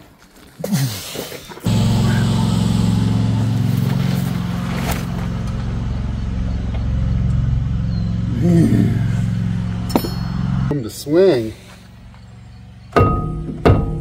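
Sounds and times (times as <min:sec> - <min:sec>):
motor humming: 0:01.6 - 0:10.7.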